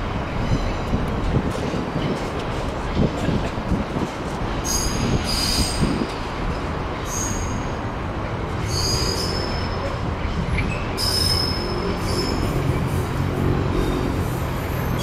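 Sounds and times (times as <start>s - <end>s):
train rumbling past: 0.0s - 15.0s
train wheels squealing: 4.6s - 6.0s, 7.0s - 7.8s, 8.5s - 13.1s, 13.8s - 15.0s.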